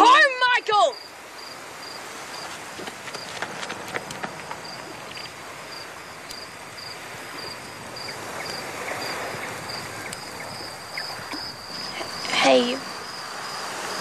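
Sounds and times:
cricket chirping: 0.0 - 14.0
outdoor background hiss: 0.0 - 14.0.

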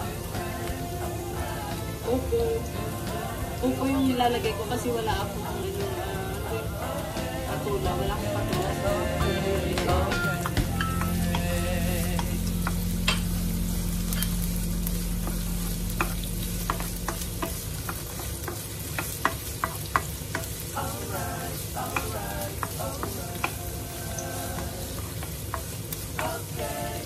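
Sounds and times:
vegetables sizzling in oil: 0.0 - 27.0
wooden spoon scraping a pan: 14.1 - 27.0.

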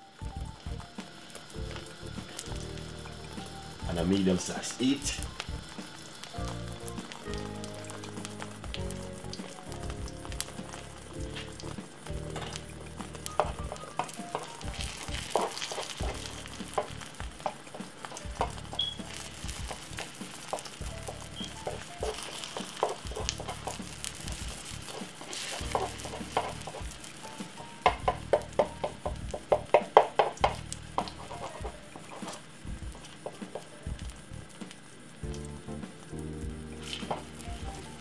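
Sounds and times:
background music: 0.0 - 38.0
egg sizzling in a pan: 0.0 - 38.0
spatula tapping and scraping pan: 24.9 - 27.1.

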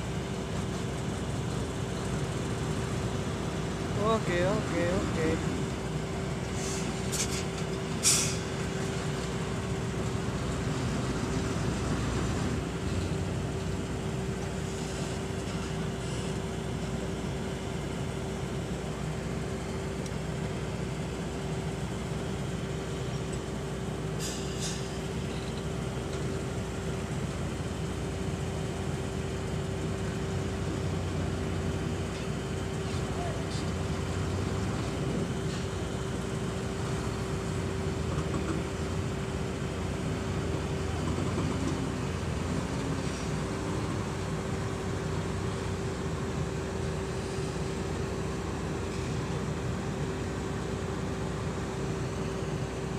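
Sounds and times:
dump truck diesel engine droning: 0.0 - 52.9
short hisses: 6.6 - 7.4, 8.0 - 8.4.

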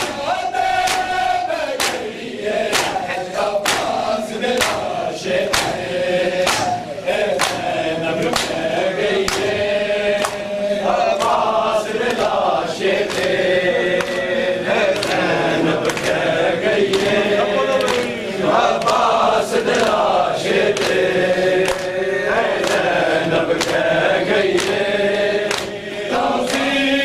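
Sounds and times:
men chanting in unison: 0.0 - 27.0.

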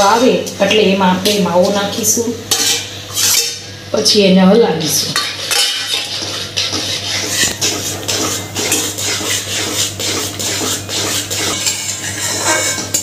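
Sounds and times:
metal spatula scraping a pan: 2.5 - 3.6, 4.9 - 13.0.

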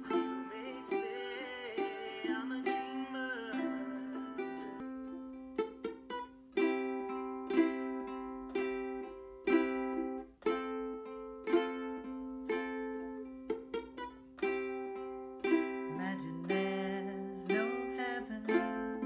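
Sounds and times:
ukulele strumming chords: 0.0 - 19.0.

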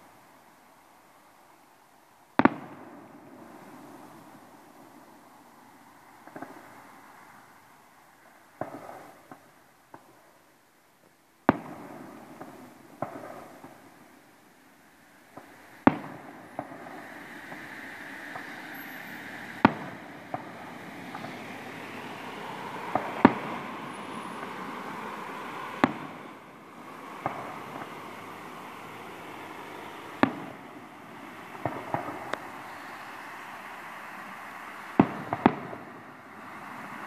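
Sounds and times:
fireworks bursting with sharp bangs: 2.4 - 5.2, 6.2 - 7.0, 8.5 - 10.3, 11.4 - 14.5, 15.2 - 37.0
steady noisy wash: 15.5 - 35.0.

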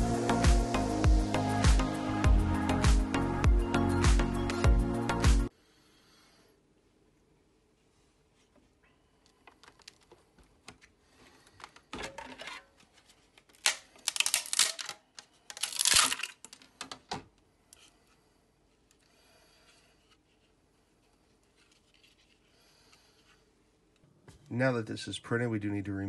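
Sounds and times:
plastic print crackling and snapping: 9.3 - 12.0, 12.9 - 17.1.

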